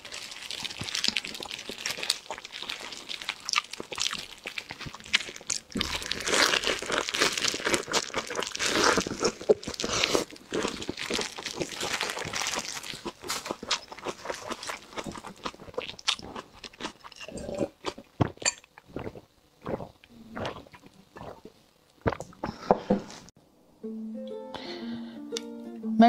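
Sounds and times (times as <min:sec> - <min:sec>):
crunching and chewing: 0:00.0 - 0:22.4.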